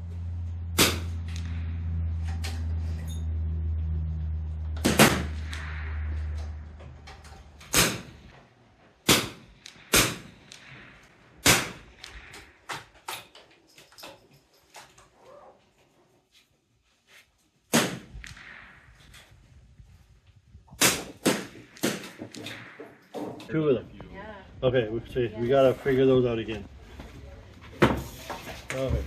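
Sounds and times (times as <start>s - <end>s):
steady low hum: 0.0s - 15.0s
rifle shots: 0.8s - 1.8s, 4.8s - 13.4s, 17.7s - 19.6s, 20.7s - 23.8s.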